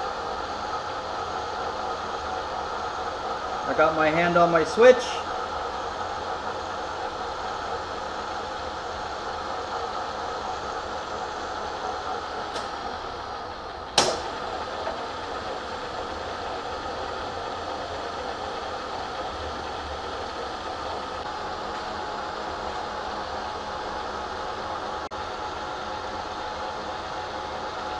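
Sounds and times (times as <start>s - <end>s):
milling machine spindle running: 0.0s - 27.9s
sharp click: 12.5s - 12.8s, 14.0s - 14.3s.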